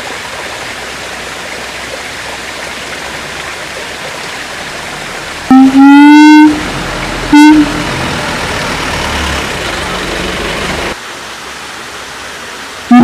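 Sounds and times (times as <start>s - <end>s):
siamang call: 7.3s - 7.9s.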